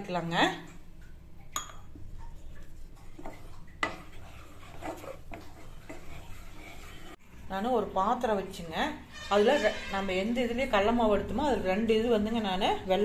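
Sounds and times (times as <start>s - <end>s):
spatula scraping a pan: 2.7s - 7.2s, 9.1s - 10.2s.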